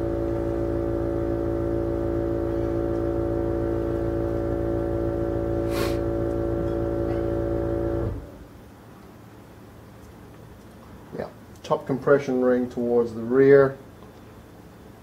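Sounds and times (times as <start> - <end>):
steady machine hum: 0.0 - 8.9.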